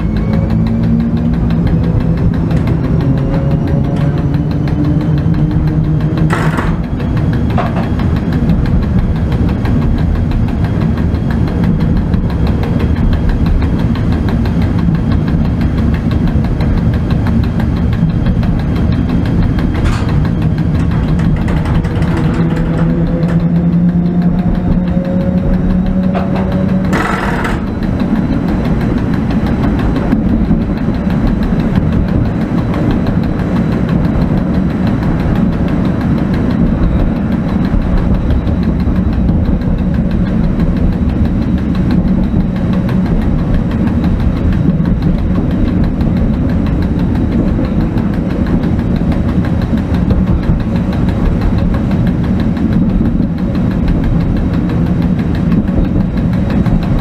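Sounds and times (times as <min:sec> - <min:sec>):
humming tone: 0:00.0 - 0:57.0
locomotive running gear rumble: 0:00.0 - 0:57.0
sharp knocks: 0:04.7 - 0:11.0, 0:15.9 - 0:32.1.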